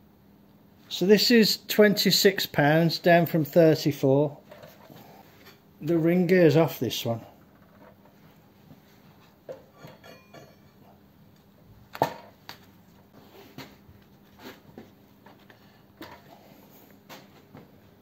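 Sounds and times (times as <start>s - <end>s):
metal clinks and knocks: 9.5s - 11.0s.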